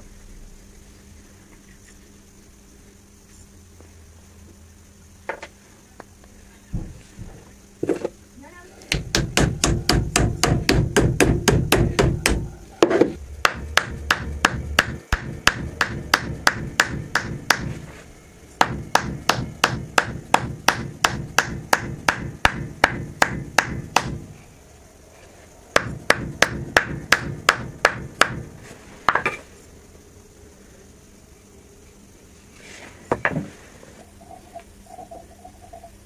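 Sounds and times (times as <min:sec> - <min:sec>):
mallet striking hatchet head: 0:13.4 - 0:17.7, 0:18.6 - 0:24.2.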